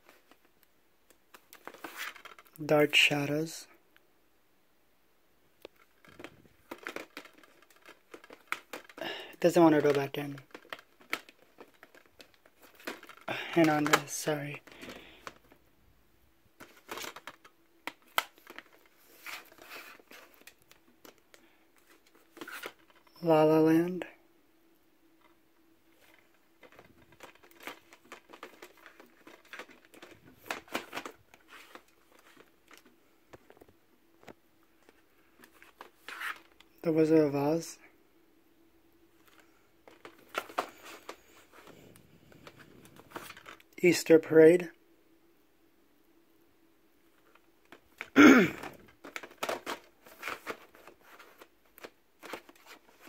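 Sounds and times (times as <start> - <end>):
plastic cases clicking and scraping: 1.1 - 2.6, 5.6 - 15.7, 16.6 - 23.1, 25.1 - 36.7, 39.2 - 43.8, 47.1 - 53.0.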